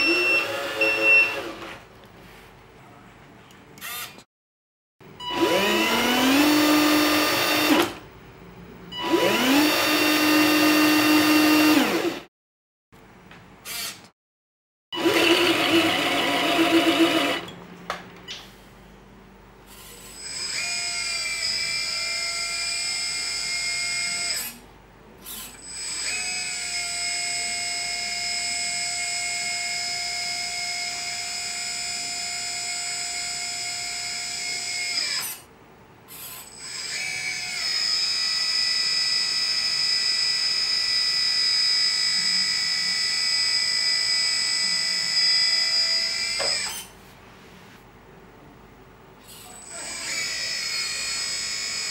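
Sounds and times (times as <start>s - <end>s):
electric hydraulic pump whining: 15.0s - 17.6s.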